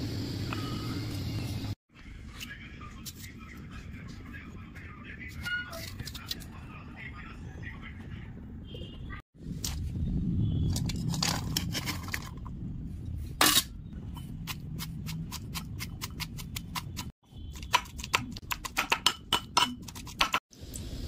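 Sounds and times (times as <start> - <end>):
metal pestle pounding in mortar: 15.0 - 20.4.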